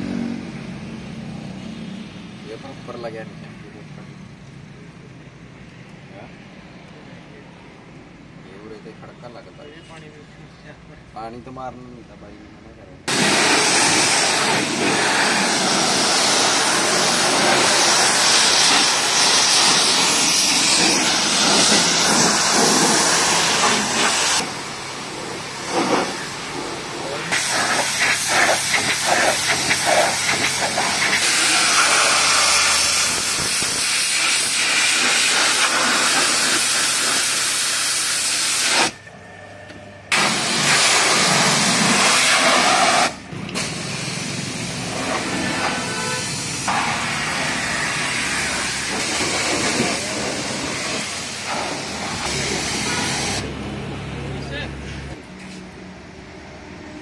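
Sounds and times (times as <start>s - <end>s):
pressure washer spraying water: 13.1s - 39.0s, 40.1s - 53.6s.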